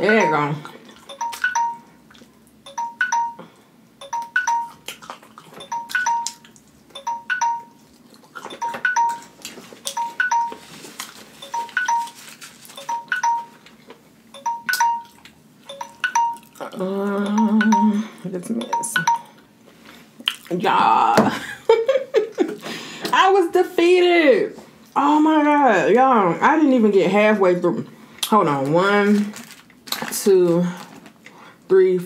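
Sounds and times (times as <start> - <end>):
phone timer alarm chime: 0.0 - 2.0, 2.6 - 4.8, 5.6 - 7.8, 8.5 - 10.8, 11.4 - 12.2, 12.8 - 13.6, 14.3 - 16.6, 17.3 - 19.3.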